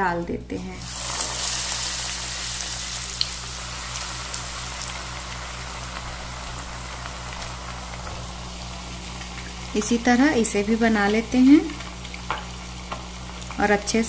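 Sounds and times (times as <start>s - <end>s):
food deep-frying in oil: 0.8s - 14.0s.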